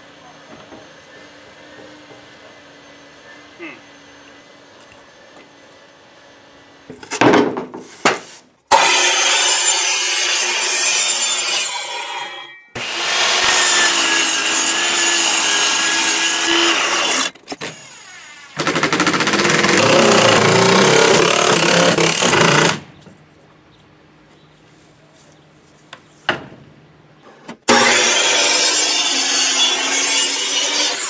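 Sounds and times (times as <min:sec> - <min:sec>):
saw cutting through board: 0:08.7 - 0:22.8, 0:27.7 - 0:31.0
power drill on wood: 0:12.8 - 0:22.9, 0:27.7 - 0:31.0.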